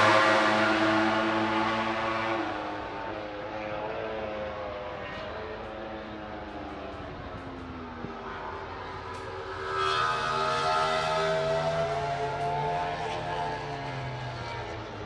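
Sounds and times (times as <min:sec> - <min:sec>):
racing motorcycle engines: 0:00.0 - 0:15.0.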